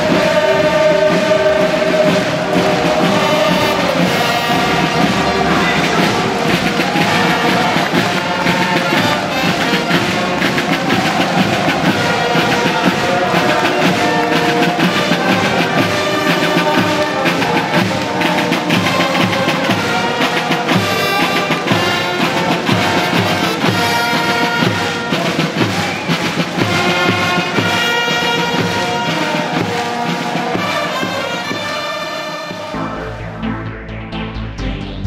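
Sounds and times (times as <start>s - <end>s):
bass drum beat: 0.0s - 18.1s, 32.6s - 35.0s
brass band playing: 0.0s - 35.0s.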